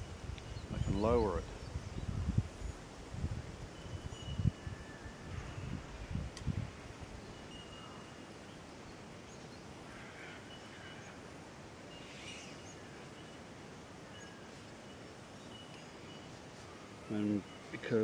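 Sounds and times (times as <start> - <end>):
faint outdoor background hiss: 0.0 - 18.0
distant bird calls: 3.8 - 6.1, 7.1 - 18.0.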